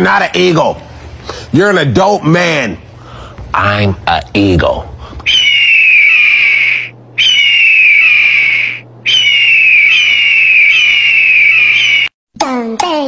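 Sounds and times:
eagle screech: 5.3s - 12.1s.

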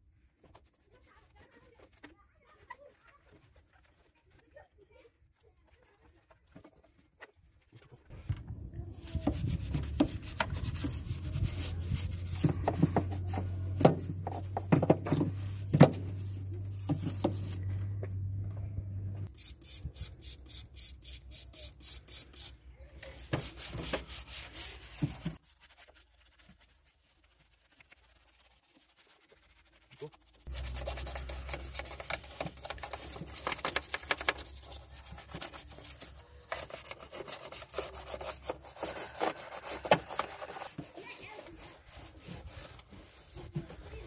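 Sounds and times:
brush scrubbing plastic: 0.2s - 8.2s, 8.8s - 17.8s, 19.2s - 44.0s
low steady hum: 15.4s - 19.3s
brush clicking against parts: 30.5s - 37.0s.

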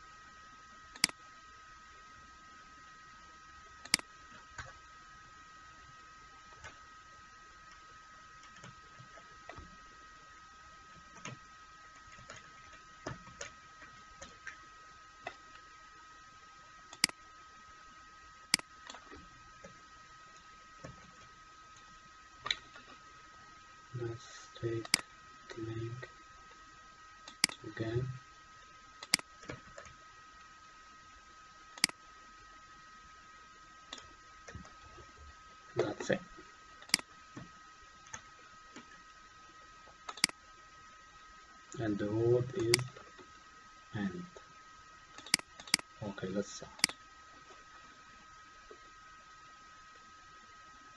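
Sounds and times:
faint high whine: 0.0s - 50.9s
faint high-pitched hum: 0.0s - 50.9s
keyboard and mouse clicks: 0.9s - 1.2s, 3.8s - 4.8s, 12.0s - 14.6s, 16.9s - 17.2s, 24.7s - 25.7s, 27.2s - 27.7s, 29.0s - 30.0s, 31.8s - 32.0s, 36.8s - 38.9s, 40.0s - 40.4s, 42.5s - 43.1s, 45.2s - 45.9s, 46.8s - 47.0s.

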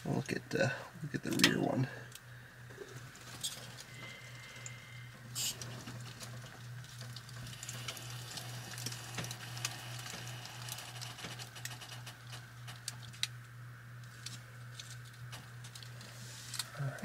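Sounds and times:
low hum: 0.0s - 17.0s
faint ticks and creaks: 2.1s - 13.3s.

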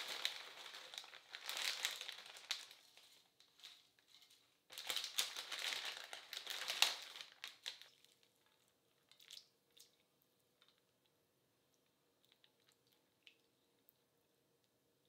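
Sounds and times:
plastic bag crinkling: 0.0s - 9.4s
faint clicks of noodles: 6.6s - 14.8s.

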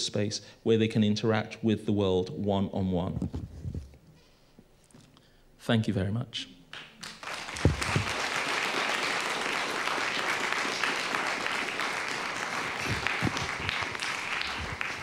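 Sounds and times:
audience applauding: 7.0s - 15.0s.

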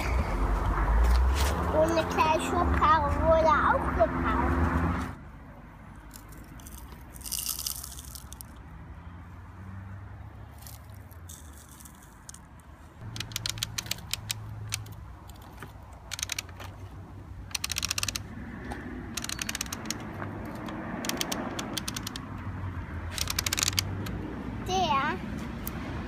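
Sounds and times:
toy winch ratcheting clicks: 6.1s - 8.5s, 13.0s - 16.7s, 17.5s - 18.3s, 19.1s - 22.3s, 23.1s - 24.2s.

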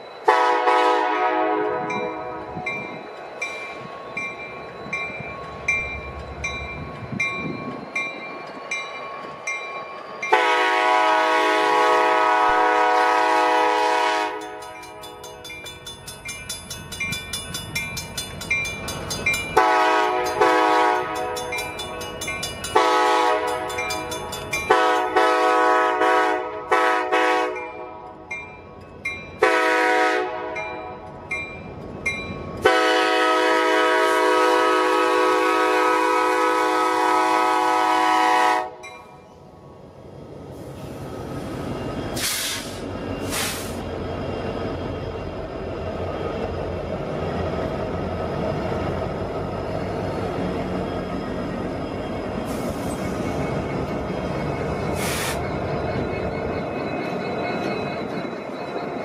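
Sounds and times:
locomotive horn blasts: 0.2s - 2.6s, 10.3s - 14.6s, 19.6s - 21.4s, 22.8s - 23.7s, 24.7s - 28.1s, 29.4s - 30.6s, 32.6s - 38.9s
crossing bell ringing: 1.7s - 40.0s, 43.9s - 59.0s.

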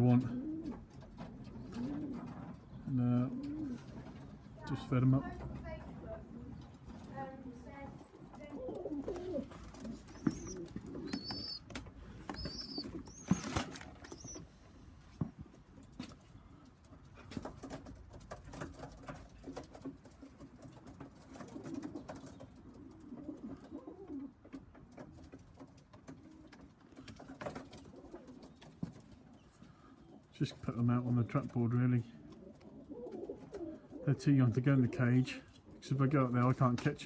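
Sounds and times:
pigeons cooing: 0.0s - 4.5s, 8.0s - 14.7s, 21.2s - 24.7s, 26.1s - 28.7s, 32.2s - 34.1s.

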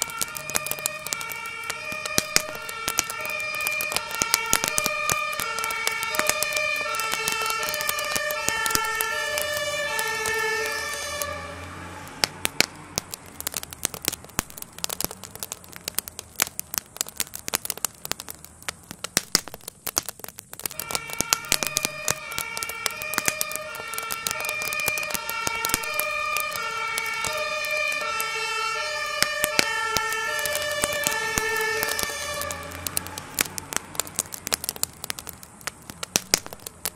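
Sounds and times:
two-tone emergency siren: 0.0s - 12.4s, 20.7s - 33.4s
fire crackling and popping: 0.0s - 36.9s.

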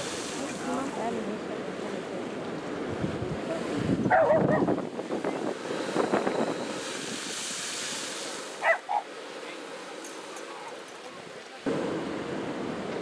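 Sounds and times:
blowhole spouting spray hiss: 0.0s - 1.4s, 4.8s - 10.4s
surf washing on rocks: 0.0s - 13.0s.

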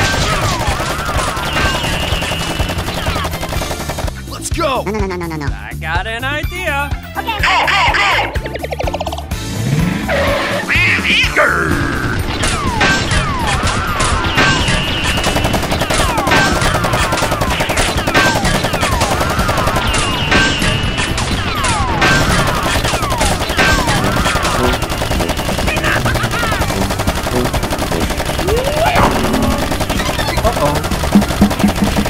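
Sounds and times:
automatic gunfire effects: 0.0s - 4.3s, 12.4s - 32.0s.

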